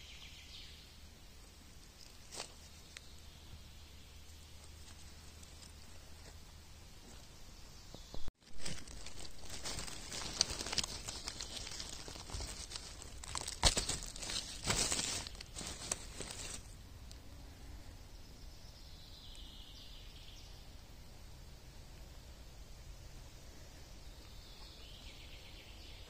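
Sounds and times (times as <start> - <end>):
dry leaves rustling and crackling: 1.8 - 6.4, 8.4 - 16.8.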